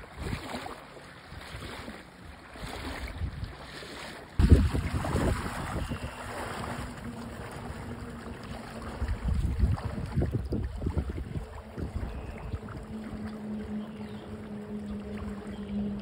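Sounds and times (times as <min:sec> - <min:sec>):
river water washing: 0:00.0 - 0:16.0
waders splashing through water: 0:00.0 - 0:16.0
wind gusts on microphone: 0:03.0 - 0:03.6, 0:04.4 - 0:06.9, 0:08.8 - 0:13.3.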